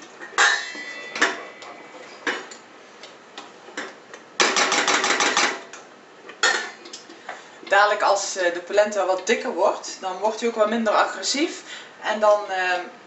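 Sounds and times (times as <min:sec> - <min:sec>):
steel lid clink: 0:00.4 - 0:02.6.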